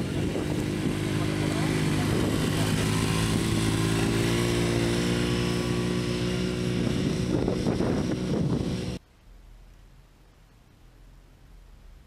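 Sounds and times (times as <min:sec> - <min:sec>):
utility vehicle engine running: 0:00.0 - 0:09.0.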